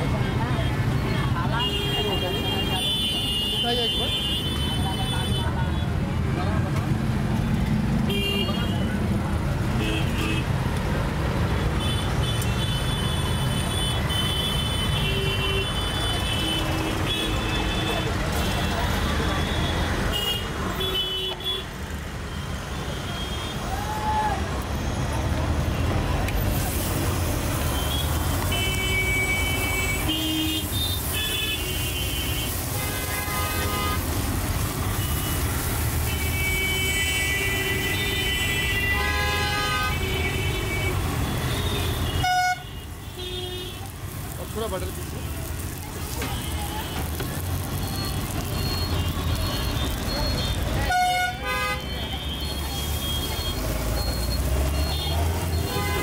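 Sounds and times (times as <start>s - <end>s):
low rumble of traffic engines: 0.0s - 56.0s
vehicle horns honking: 8.1s - 8.9s, 27.8s - 34.2s, 34.8s - 43.9s, 48.5s - 53.7s, 54.9s - 56.0s.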